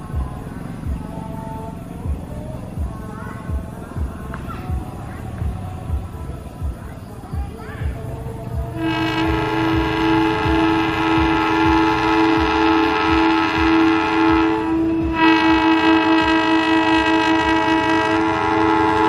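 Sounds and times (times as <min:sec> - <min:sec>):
locomotive engine and wheels rumbling: 0:00.0 - 0:19.0
locomotive air horn chord: 0:08.8 - 0:19.0.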